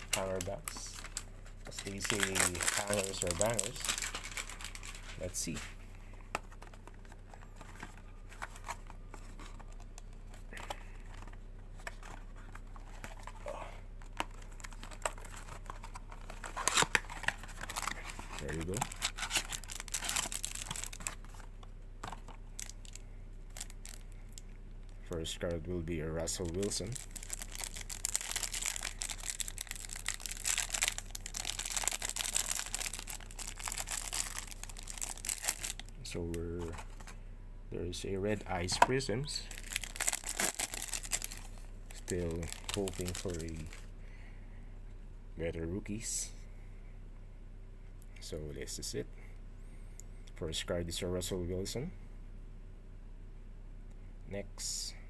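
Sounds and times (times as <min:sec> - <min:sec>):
packaging crinkling: 0:00.0 - 0:05.6, 0:14.0 - 0:24.1, 0:26.3 - 0:35.9, 0:39.5 - 0:43.9.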